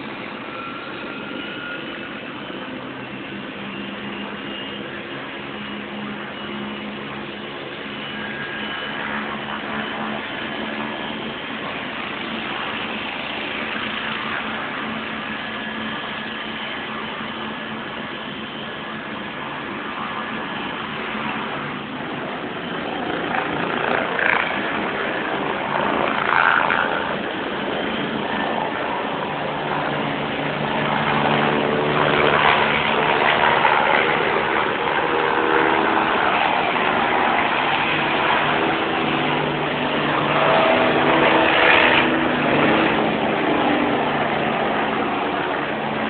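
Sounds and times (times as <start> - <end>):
helicopter engine and rotor running: 0.0 - 46.0.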